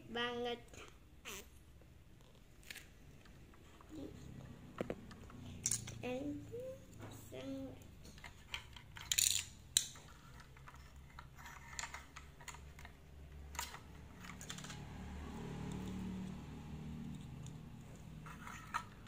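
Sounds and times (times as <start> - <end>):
plastic bricks clicking and clattering: 8.1 - 14.8.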